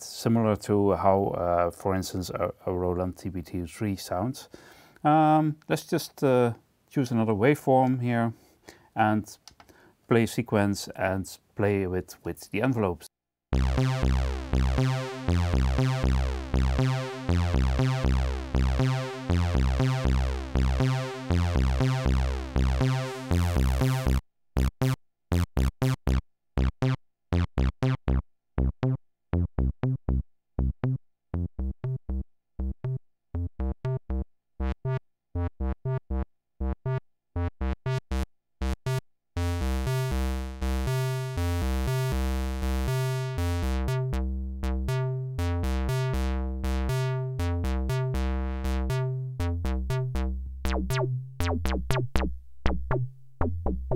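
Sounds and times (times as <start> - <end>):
synthesizer low note sequence: 13.5 - 53.9.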